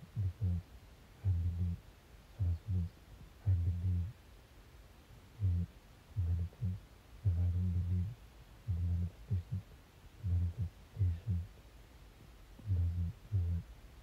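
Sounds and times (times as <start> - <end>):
muffled deep bass notes: 0.0 - 0.6, 1.2 - 1.8, 2.4 - 4.1, 5.3 - 9.6, 10.2 - 11.5, 12.6 - 13.7.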